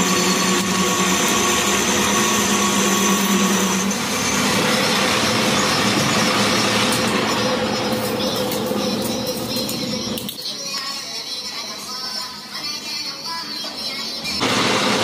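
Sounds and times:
metal lathe humming: 0.0 - 10.2.

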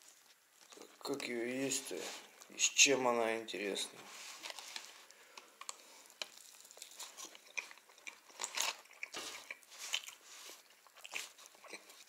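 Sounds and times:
paper wrapper crackling and rustling: 4.1 - 5.2, 5.9 - 12.0.

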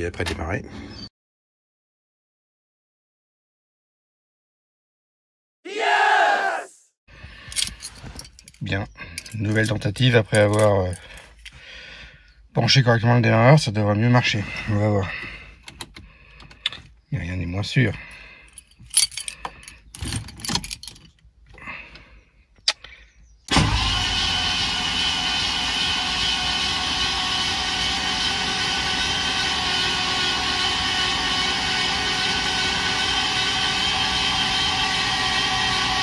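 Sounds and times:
starter motor cranking engine: 23.5 - 25.6.

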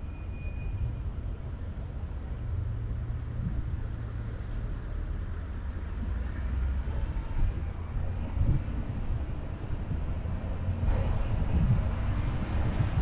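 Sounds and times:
car engine and tyre rumble: 0.0 - 13.0.

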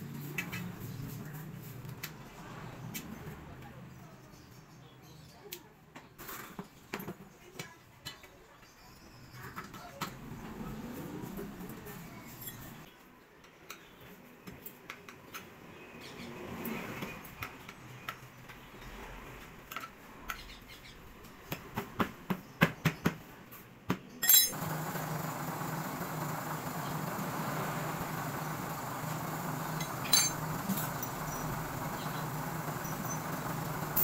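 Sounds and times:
metal clinks of spoked wheel: 24.2 - 24.6, 29.7 - 31.2.

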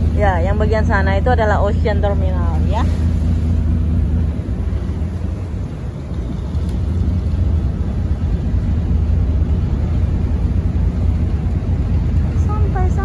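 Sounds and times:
ferry engine low rumble: 0.0 - 13.0
water wash: 0.0 - 13.0
wind along deck: 0.0 - 13.0.

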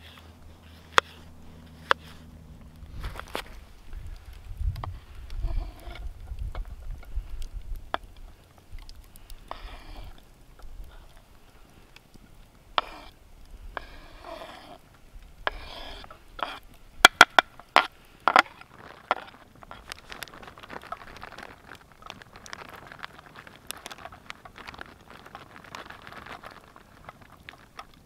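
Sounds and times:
crackling log fire: 0.0 - 28.0
knife scraping cutting board: 15.5 - 16.6.

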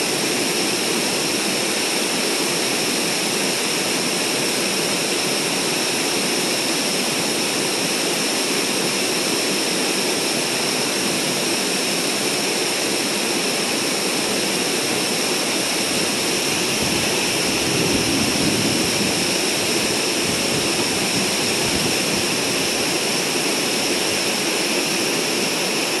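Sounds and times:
creek water rushing over rocks: 11.9 - 26.0.

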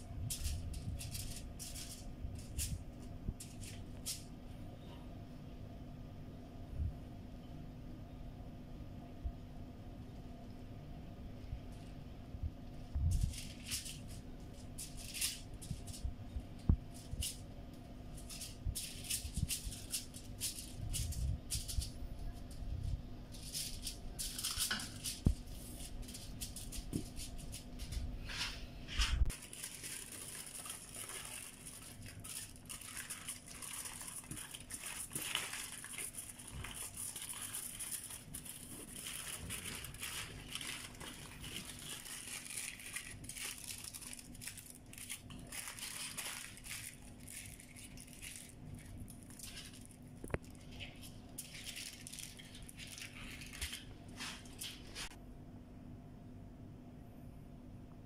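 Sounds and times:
aluminium foil crinkling: 0.0 - 4.4, 12.7 - 28.5, 29.2 - 55.2.

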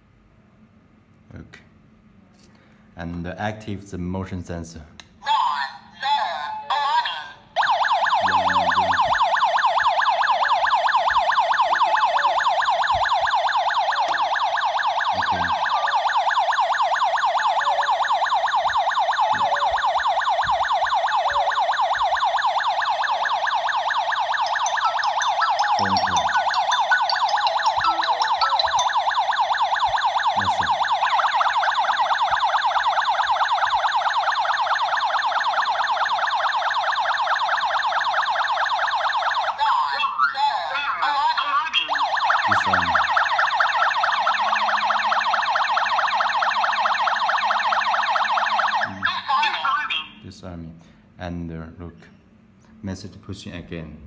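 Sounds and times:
warbling alarm siren: 7.6 - 40.1, 41.8 - 49.2.

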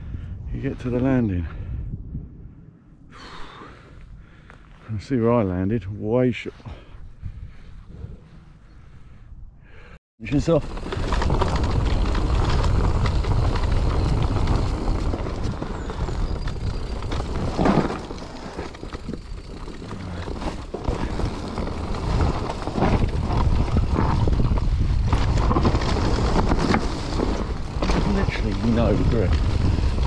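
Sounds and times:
wind buffeting microphone: 0.0 - 5.9, 6.7 - 9.9, 10.5 - 30.0
bike tyres and frame rattling: 10.2 - 30.0
bike knocking over bumps: 10.6 - 30.0.

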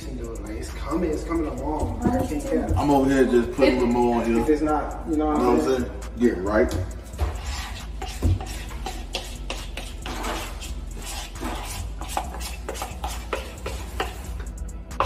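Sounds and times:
spatula scraping bowl: 6.9 - 15.0.

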